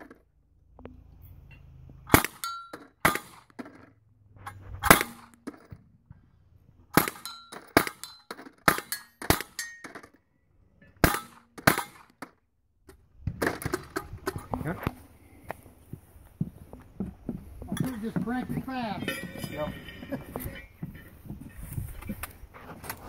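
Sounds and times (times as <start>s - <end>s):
gatling gun shots: 2.1s - 3.8s, 4.8s - 5.5s, 6.9s - 9.6s
metallic ring: 2.4s - 2.9s, 8.9s - 10.0s, 18.8s - 21.6s.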